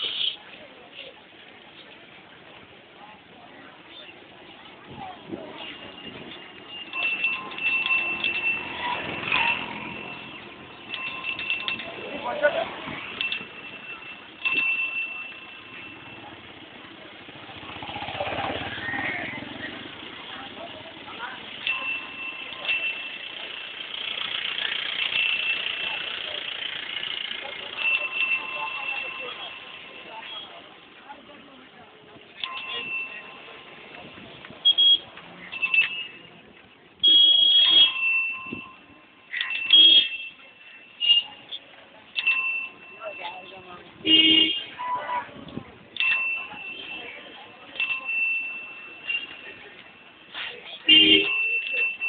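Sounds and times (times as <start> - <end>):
street noise: 0.0 - 52.0
bell ringing: 5.9 - 16.5, 21.6 - 23.6, 27.6 - 30.4, 32.4 - 33.7, 42.2 - 43.8, 46.0 - 50.2, 51.0 - 52.0.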